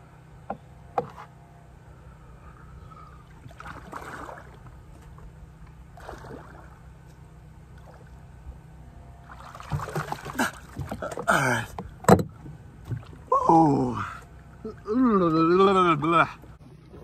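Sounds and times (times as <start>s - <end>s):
water lapping against wooden dock: 2.9s - 8.4s, 9.2s - 17.0s.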